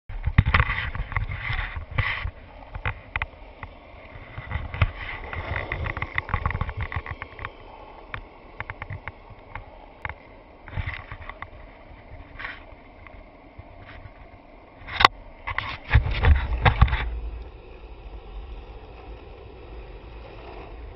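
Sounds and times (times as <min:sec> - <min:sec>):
skateboard wheels rolling on asphalt: 0:00.1 - 0:20.9.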